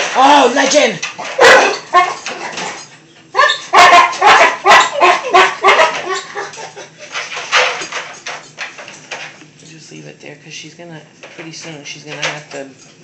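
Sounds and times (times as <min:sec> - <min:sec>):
dog yelping: 0:01.4 - 0:02.6, 0:03.3 - 0:07.1.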